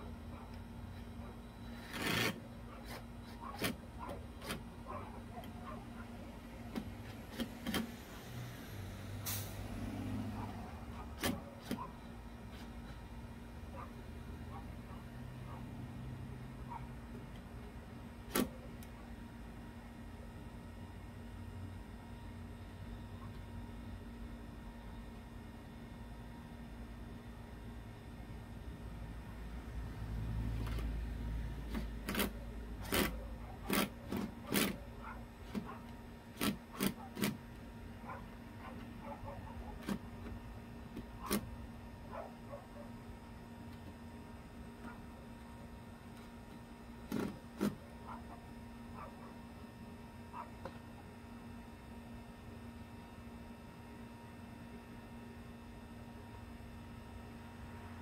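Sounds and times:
short hiss: 8.6 - 9.6.

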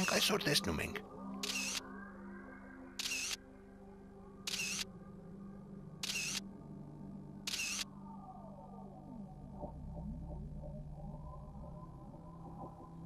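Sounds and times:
soft background music: 0.0 - 13.0
camera shutter snaps: 1.4 - 1.8, 3.0 - 3.4, 4.5 - 4.9, 6.0 - 6.4, 7.5 - 7.9.

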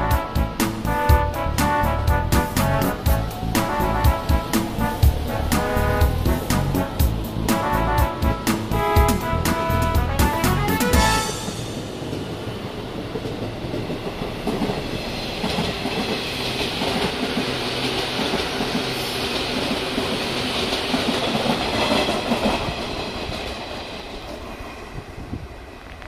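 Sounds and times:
electric trains running past: 0.0 - 26.0.

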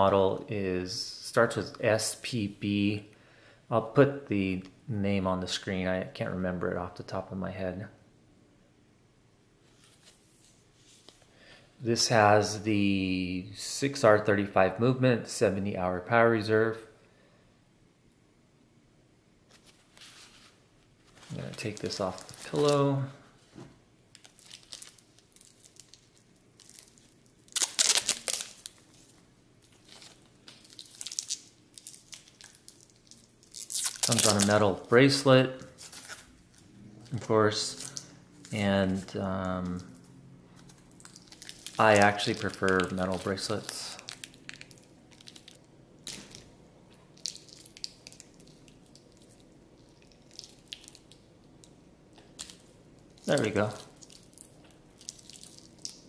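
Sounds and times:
plastic film crinkling: 19.6 - 23.1, 24.1 - 56.0.

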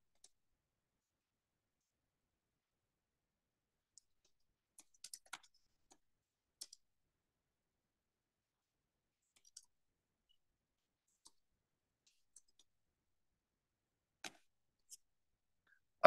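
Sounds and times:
keyboard typing: 4.0 - 6.0.

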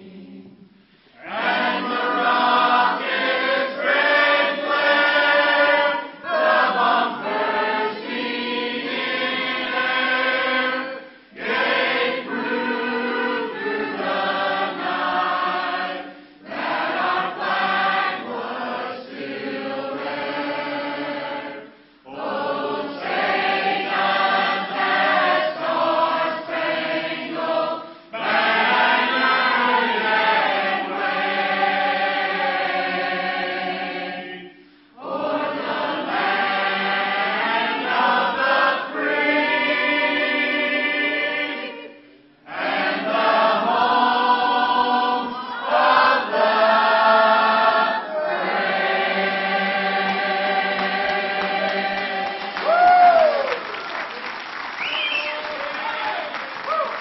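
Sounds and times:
church choir singing: 0.0 - 52.8.

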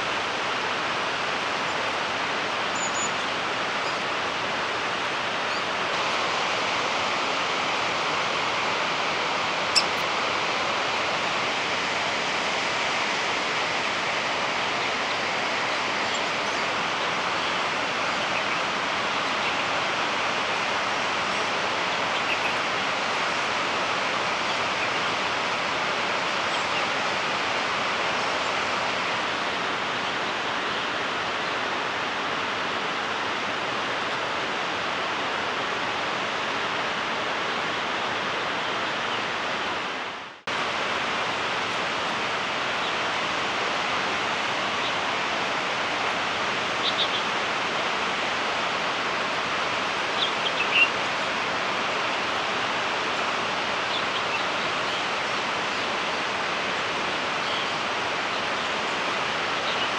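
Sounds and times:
fast-flowing water rushing: 0.0 - 59.9.

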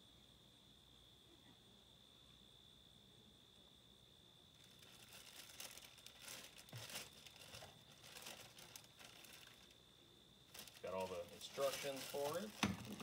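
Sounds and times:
faint high-pitched whine: 0.0 - 13.0
paper packaging crinkling: 4.6 - 9.8, 10.5 - 13.0.

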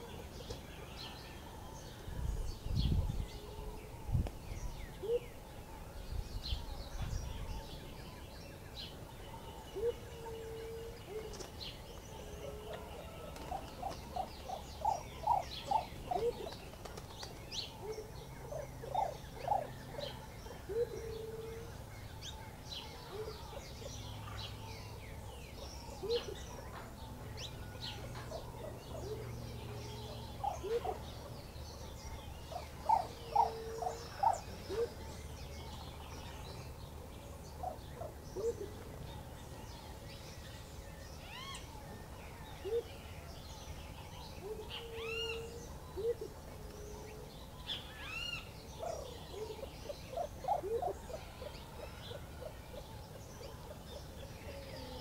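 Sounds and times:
birds calling low notes: 0.0 - 55.0.

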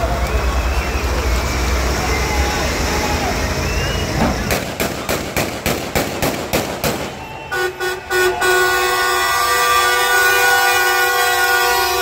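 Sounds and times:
vehicle horn: 7.5 - 12.0.

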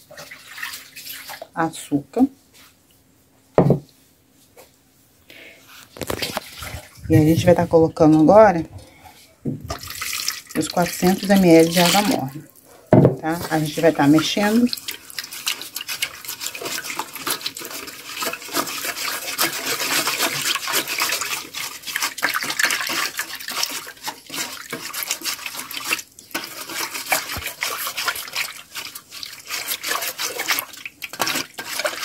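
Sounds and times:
whisk beating liquid in bowl: 9.7 - 12.4, 13.3 - 32.0.

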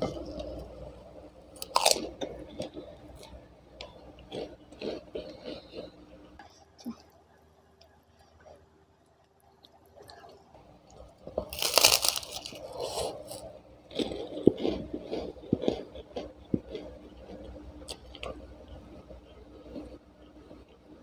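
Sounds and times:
cracker crunching: 1.5 - 6.4, 9.1 - 20.7.

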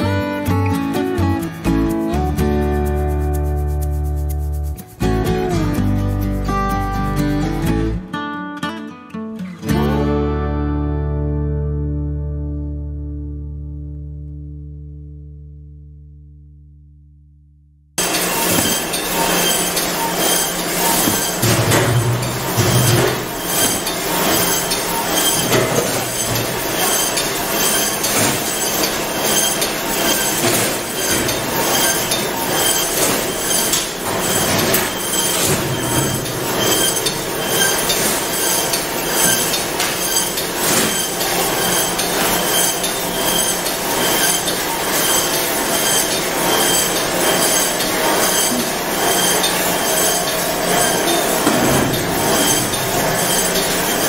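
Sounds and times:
processing line machinery din: 18.0 - 54.0.

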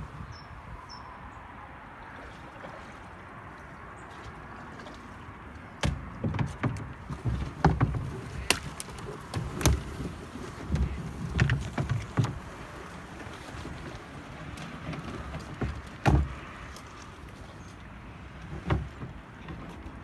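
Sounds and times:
knocks and thumps on hull: 5.8 - 16.6, 18.4 - 20.0
twigs scraping and cracking on hull: 5.8 - 17.8.

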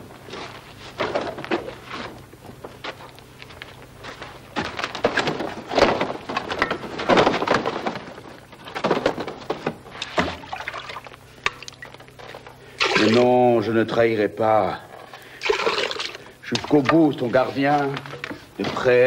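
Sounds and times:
thuds and knocks: 4.6 - 10.5.

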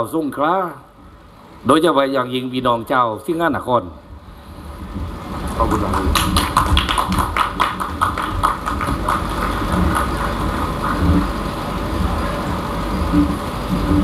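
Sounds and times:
crowd hum: 4.3 - 14.0
hands clapping: 5.5 - 11.4.

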